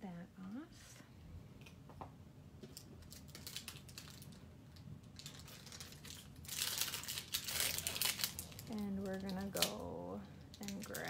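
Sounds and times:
rustling crinkling noise: 2.6 - 11.0.

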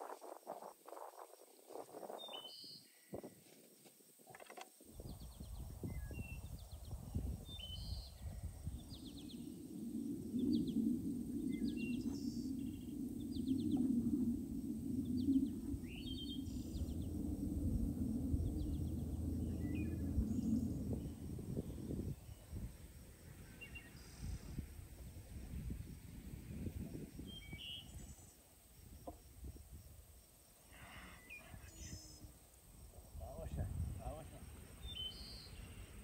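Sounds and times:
small birds chirping: 1.5 - 3.2, 4.8 - 9.6, 10.4 - 14.0, 15.0 - 17.5, 18.4 - 24.5, 27.2 - 28.5, 33.2 - 36.0
steady low rushing noise: 5.1 - 27.5.

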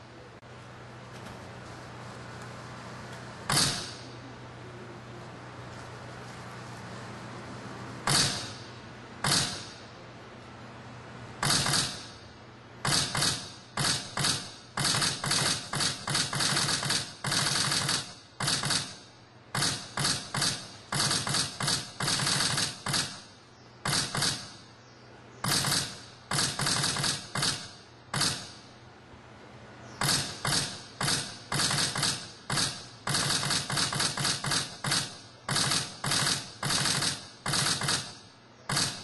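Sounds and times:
faint steady hum: 0.0 - 39.0
sharp clacking ratchet strikes: 3.5 - 4.2, 8.0 - 10.0, 11.4 - 24.7, 25.4 - 28.8, 30.0 - 39.0.

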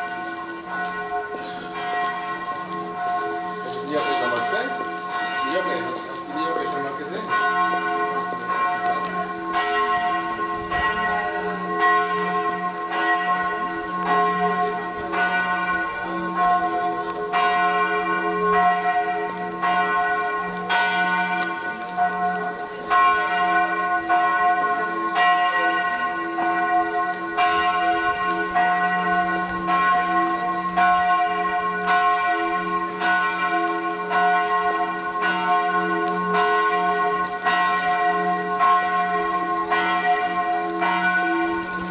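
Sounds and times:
church bells pealing: 0.0 - 41.9.

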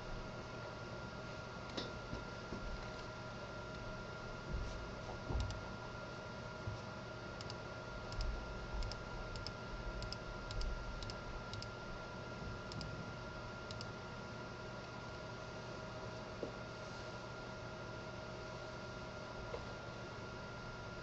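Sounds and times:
steady hum with faint whine: 0.0 - 21.0
computer mouse clicking: 7.4 - 11.7, 12.7 - 12.9, 13.7 - 13.9.

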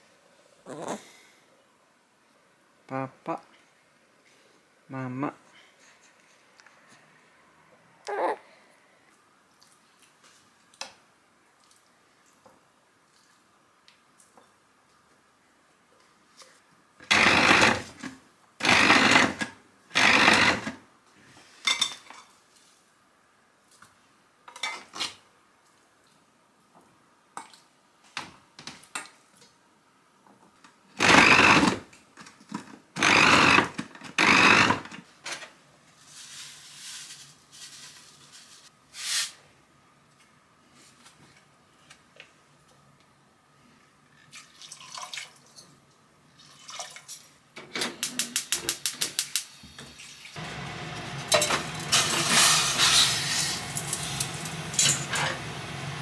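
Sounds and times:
food processor chopping: 17.0 - 18.0, 18.6 - 20.8, 31.0 - 31.8, 33.0 - 34.9, 50.4 - 56.0.

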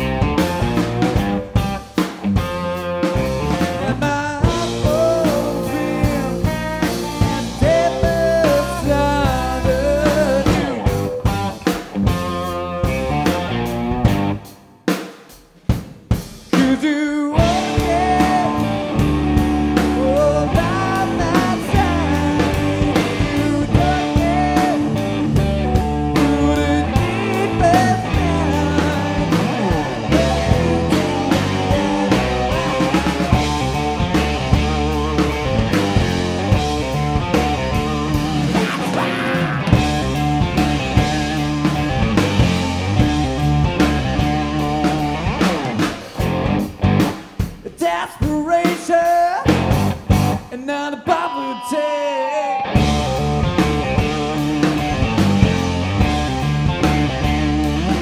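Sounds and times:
electric guitar lead line: 0.0 - 14.8, 17.4 - 47.6, 49.4 - 58.0
bass guitar: 0.0 - 15.0, 15.6 - 58.0
drum beat: 0.0 - 50.6, 52.8 - 58.0.

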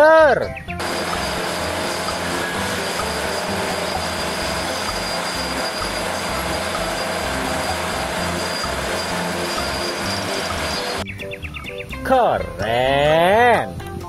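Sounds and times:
bulldozer diesel engine under load: 0.8 - 11.0
steel tracks grinding: 0.8 - 11.0
thin high whine: 0.8 - 11.0.

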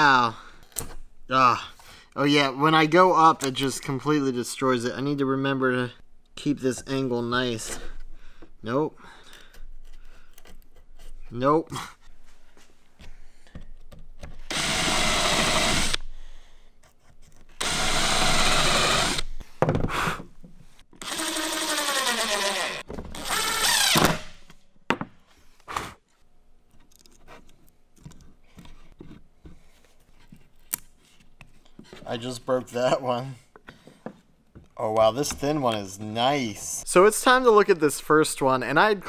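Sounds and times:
power drill boring into wood: 14.5 - 16.0, 17.6 - 19.3, 21.0 - 24.3.

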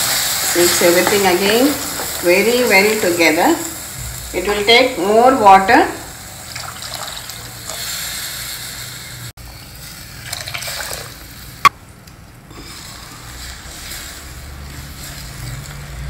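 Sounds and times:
water pouring into gravy: 6.5 - 7.4, 10.2 - 11.2.

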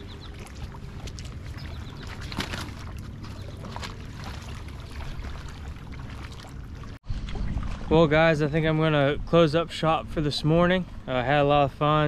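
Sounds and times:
water splash: 0.0 - 8.1
river water lapping: 0.0 - 12.0.

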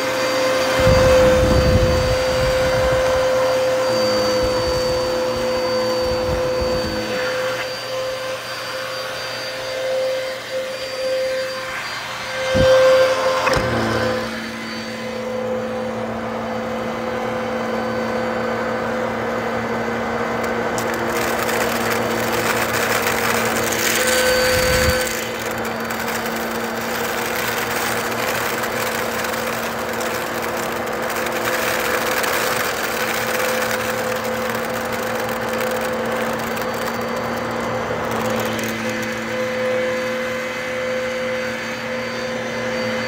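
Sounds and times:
vacuum cleaner on carpet: 0.0 - 43.0
candies rattling up vacuum: 0.6 - 8.5, 20.4 - 40.7.

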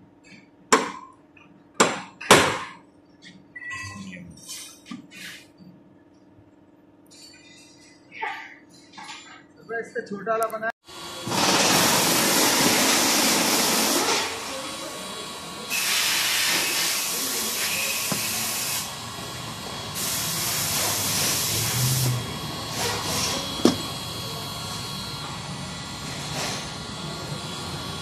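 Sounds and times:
heat gun fan hissing: 10.9 - 28.0.

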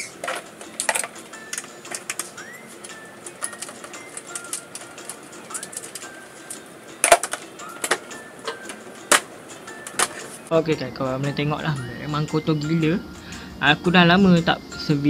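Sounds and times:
plastic panel clacks: 7.0 - 9.3.

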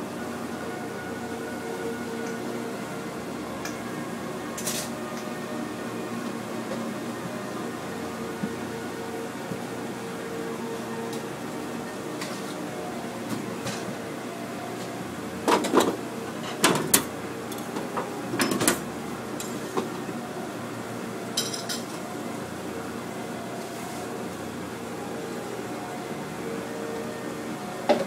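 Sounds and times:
ventilation hum: 0.0 - 28.0
utensils clattering on steel table: 4.6 - 4.9, 21.4 - 22.0.

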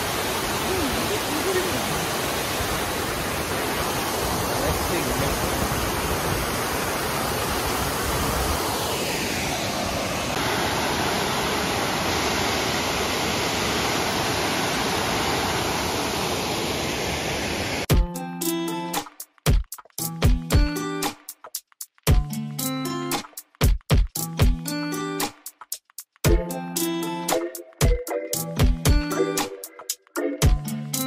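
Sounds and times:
waterfall rushing: 0.0 - 17.9.

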